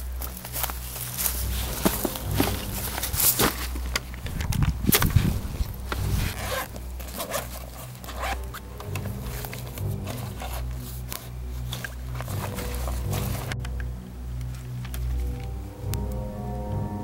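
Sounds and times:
nylon bag rustling: 0:00.0 - 0:13.6
low background music: 0:00.0 - 0:17.0
zipper being pulled: 0:04.8 - 0:13.6.

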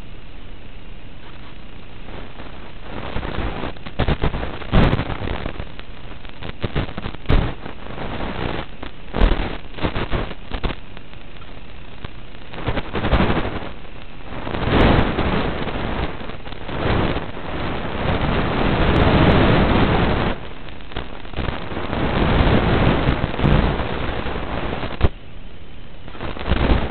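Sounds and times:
crackling static: 0:00.0 - 0:26.9
steady hiss: 0:00.0 - 0:26.9.

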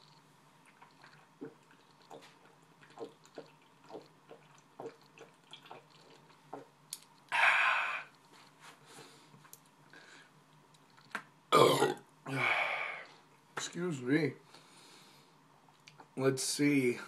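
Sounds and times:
man swallowing: 0:00.7 - 0:08.2, 0:11.0 - 0:13.0.

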